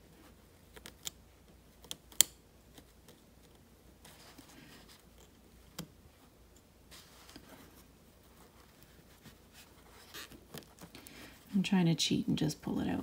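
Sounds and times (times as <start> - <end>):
fabric rustling: 2.7 - 11.6.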